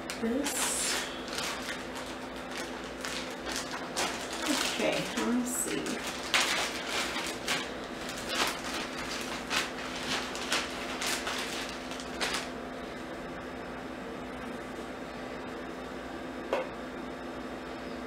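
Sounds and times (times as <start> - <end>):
plastic bag crinkling: 0.0 - 12.6
steady low hum: 0.0 - 18.0.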